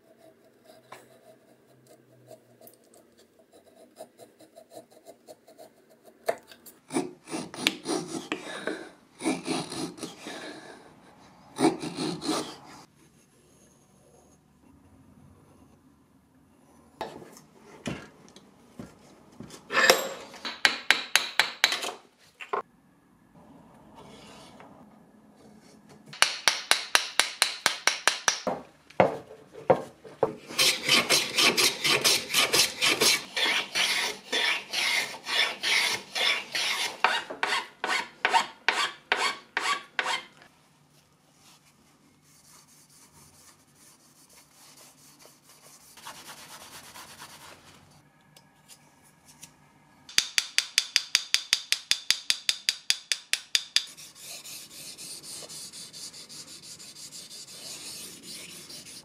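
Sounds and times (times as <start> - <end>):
hand plane shaving wood: 11.6 - 12.6, 30.5 - 40.3.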